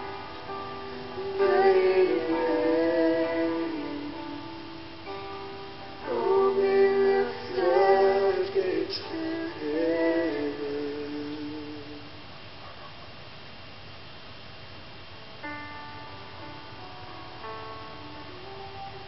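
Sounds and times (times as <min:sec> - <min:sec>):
keyboard and band accompaniment: 0:00.0 - 0:10.1, 0:15.4 - 0:19.0
woman singing long notes: 0:01.1 - 0:04.8, 0:06.0 - 0:12.2.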